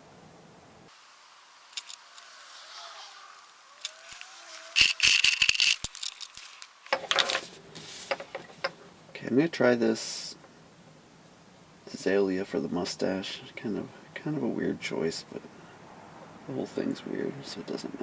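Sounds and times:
plastic marker pens clattering: 3.8s - 7.6s
marker rustling: 3.8s - 8.8s.

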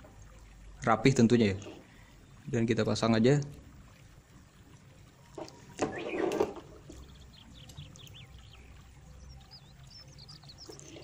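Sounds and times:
low steady hum: 0.0s - 11.0s
small birds chirping: 4.3s - 11.0s.

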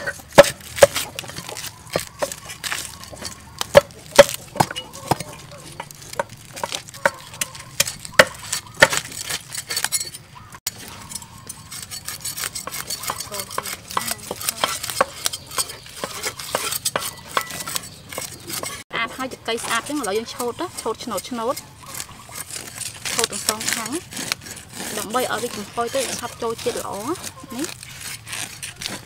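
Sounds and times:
corn husks snapping and tearing: 0.0s - 10.0s, 21.6s - 29.0s.

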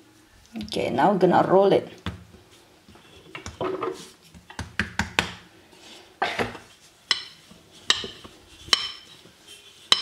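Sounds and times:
rolling pin knocking and rolling: 2.0s - 5.4s, 6.4s - 9.1s.

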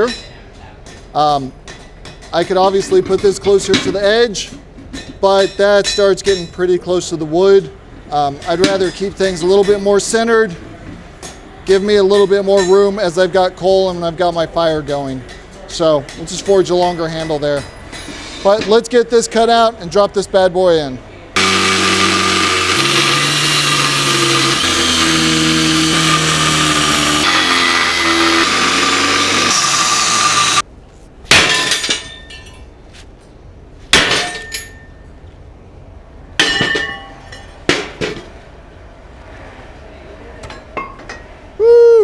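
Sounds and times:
angle grinder cutting steel: 21.4s - 30.6s.

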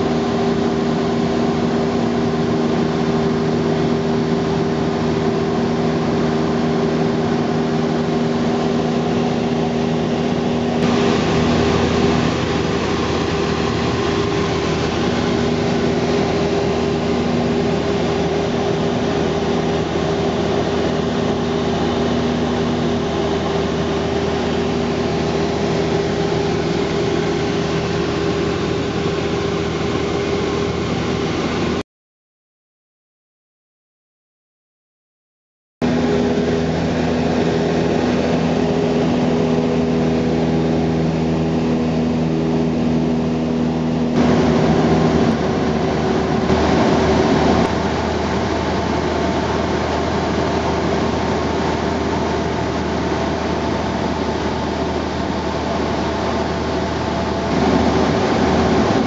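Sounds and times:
light aircraft engine droning: 0.0s - 31.8s, 35.8s - 59.0s
rushing air noise: 10.7s - 21.2s, 43.9s - 48.7s, 54.7s - 59.0s.

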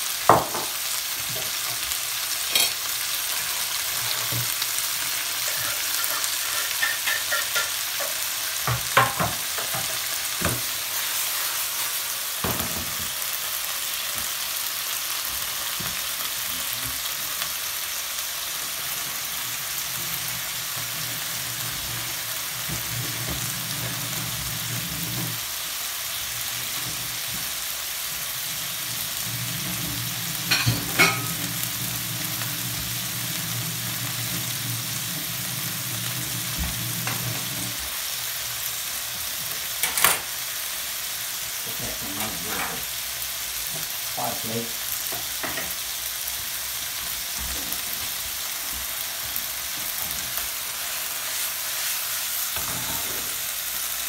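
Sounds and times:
fish sizzling in frying pan: 0.0s - 54.0s.

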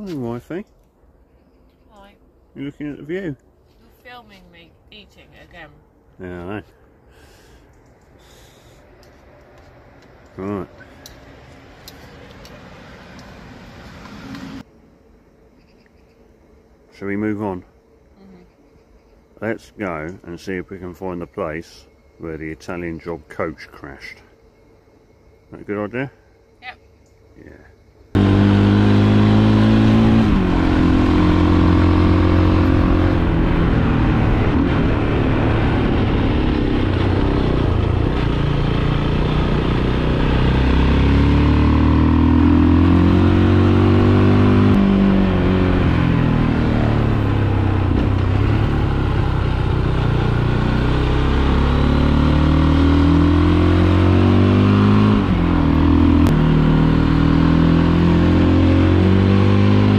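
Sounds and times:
motorcycle engine accelerating: 28.2s - 59.9s.

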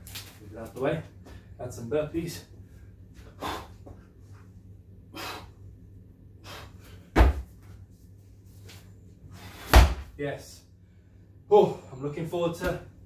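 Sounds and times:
hard breathing: 2.6s - 4.1s, 5.1s - 5.6s
heavy ball thud on mat: 7.2s - 7.5s, 9.6s - 10.1s.

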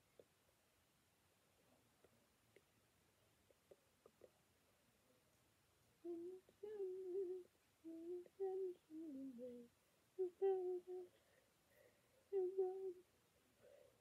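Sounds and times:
girl humming a slow tune: 6.0s - 11.1s, 12.3s - 13.0s.

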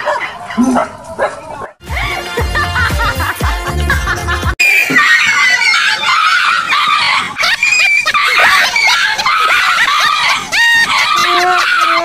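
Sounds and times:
burst of laughter: 7.4s - 12.0s.

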